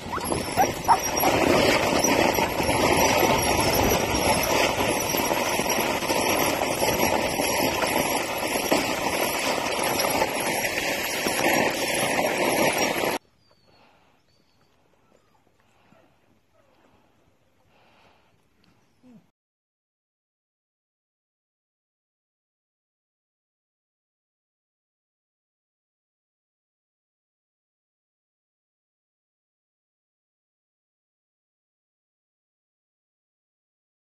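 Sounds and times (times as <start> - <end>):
kart wheels rolling on dirt: 0.0 - 13.3.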